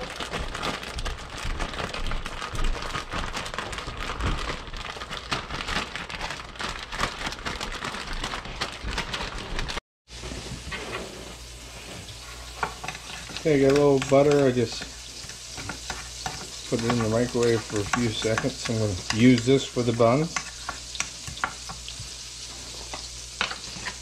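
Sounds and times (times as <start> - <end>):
hot oil sizzling in a frying pan: 10.1 - 24.0.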